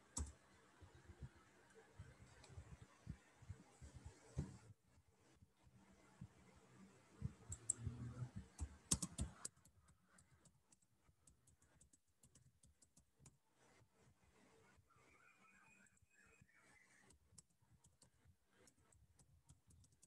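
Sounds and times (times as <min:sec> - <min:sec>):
typing on computer keyboard: 0:07.5 - 0:13.4, 0:17.1 - 0:20.0.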